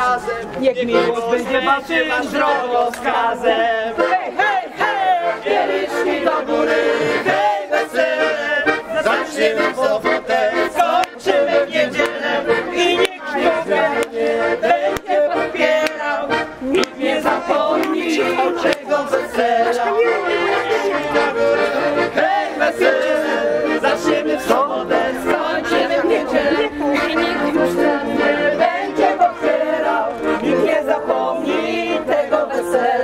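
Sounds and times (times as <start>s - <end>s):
accordion: 0.0s - 33.0s
group singing and shouting: 0.0s - 33.0s.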